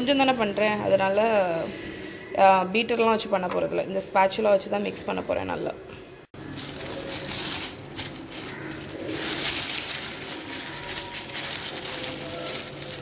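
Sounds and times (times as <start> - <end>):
plastic bag crinkling: 6.4 - 13.0.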